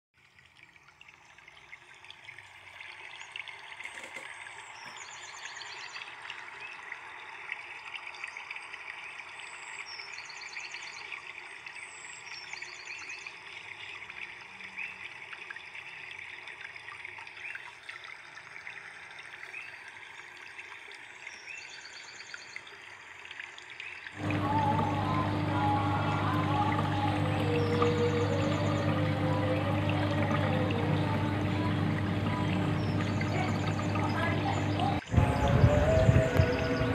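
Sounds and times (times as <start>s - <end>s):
trickle of running water: 0.2s - 36.9s
music: 24.2s - 36.9s.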